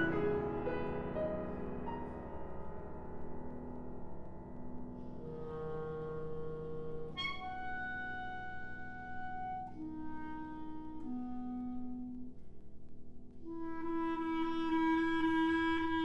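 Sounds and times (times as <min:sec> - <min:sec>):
grand piano: 0:00.0 - 0:16.0
clarinet: 0:05.1 - 0:12.6, 0:13.4 - 0:16.0.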